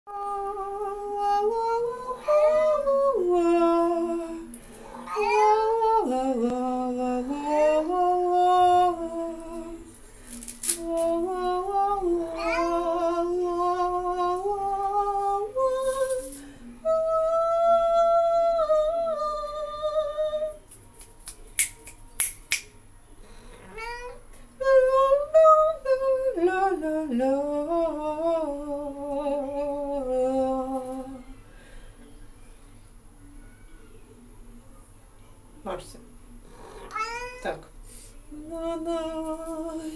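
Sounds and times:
cat yowling: 0:04.9 - 0:05.8, 0:12.4 - 0:13.0, 0:36.8 - 0:37.5
woman singing held notes: 0:10.6 - 0:20.6.

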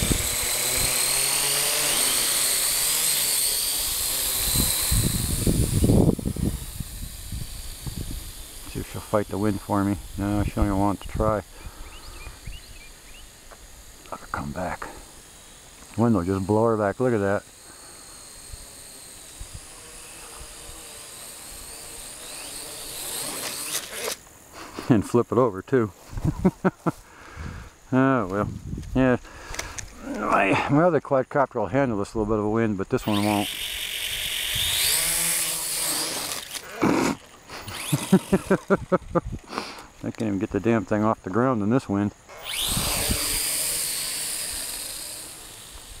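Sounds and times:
drone motors whining: 0:00.0 - 0:24.8, 0:26.0 - 0:30.8, 0:32.2 - 0:40.8, 0:42.1 - 0:46.0
wind rumbling on microphone: 0:04.4 - 0:12.8, 0:28.4 - 0:29.0, 0:38.8 - 0:39.5, 0:42.5 - 0:43.5
wind thumps on microphone: 0:28.4 - 0:29.0.

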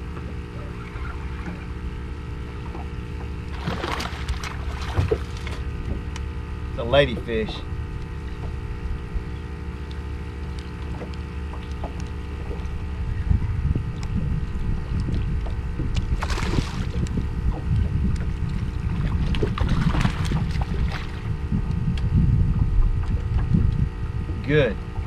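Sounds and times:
wind rumble on microphone: 0:00.0 - 0:25.0
fish splashing at surface: 0:03.5 - 0:05.7, 0:16.2 - 0:17.0.

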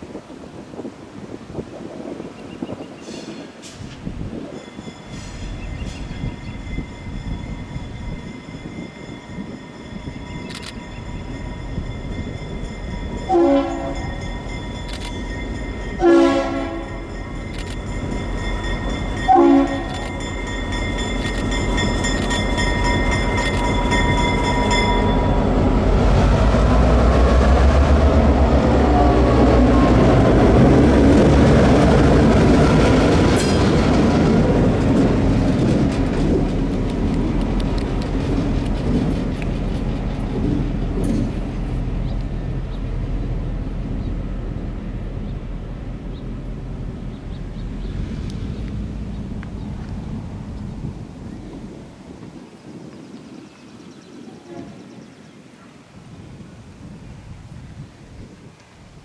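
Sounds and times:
diesel locomotive passing: 0:03.1 - 0:53.1
locomotive bell ringing: 0:04.0 - 0:26.9
air horn blasts: 0:13.3 - 0:14.1, 0:16.0 - 0:17.0, 0:19.3 - 0:20.0, 0:54.4 - 0:54.8.

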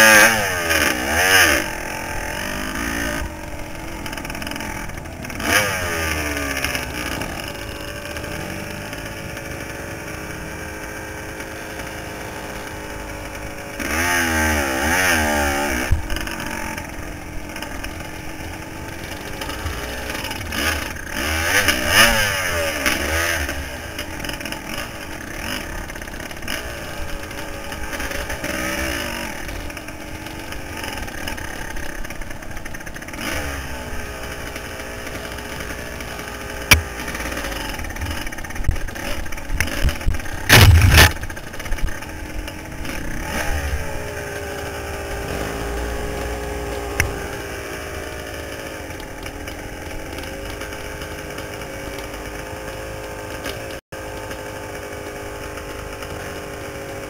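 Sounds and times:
dirt bike engine revving: 0:00.0 - 0:57.0
loud thump: 0:40.5 - 0:41.3.

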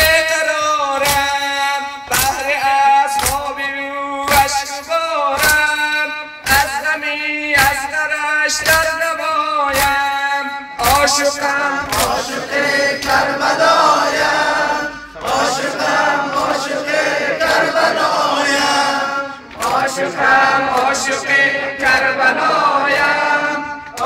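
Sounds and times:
man chanting into microphone: 0:00.0 - 0:12.6
group of men chanting: 0:10.8 - 0:24.0.

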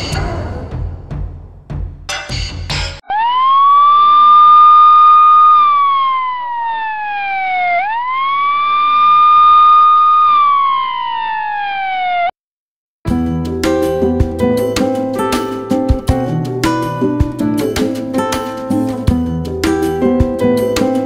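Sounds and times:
ambulance siren wailing: 0:03.0 - 0:12.4.

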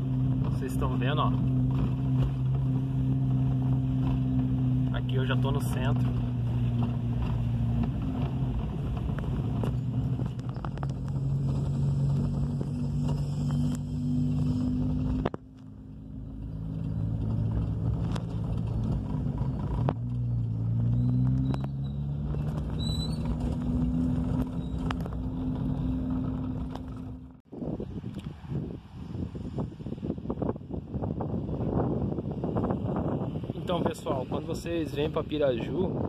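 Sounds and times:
car engine running: 0:00.0 - 0:27.5
tyre noise on block paving: 0:03.4 - 0:27.4.

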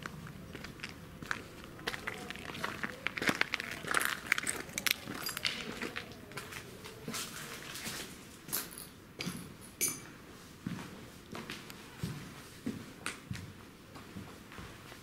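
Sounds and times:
footsteps crunching on debris: 0:00.0 - 0:08.6.

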